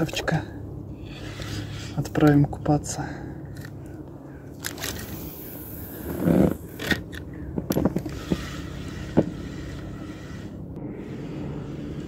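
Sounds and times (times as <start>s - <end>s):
fishing reel clicks and scrapes: 1.0s - 2.5s, 4.6s - 10.6s.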